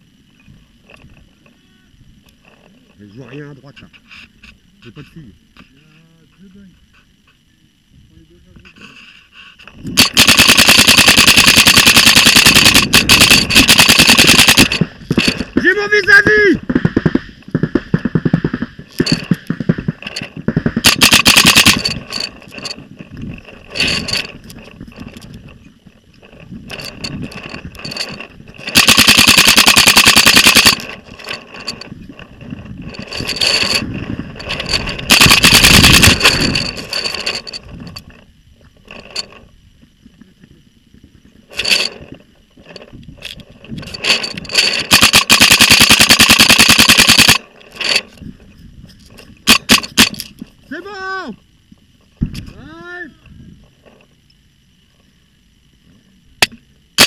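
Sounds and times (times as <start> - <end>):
paintball marker firing bursts: 10.0 - 14.9, 16.6 - 19.9, 20.5 - 22.1, 28.7 - 30.9, 35.1 - 36.4, 44.8 - 47.4.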